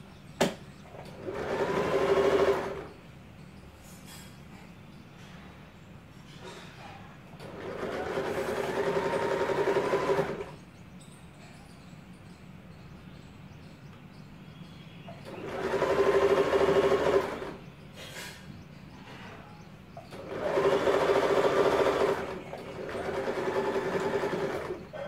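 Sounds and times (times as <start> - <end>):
sewing machine stitching: 0.9 - 2.9, 7.4 - 10.6, 15.2 - 17.6, 20.1 - 25.0.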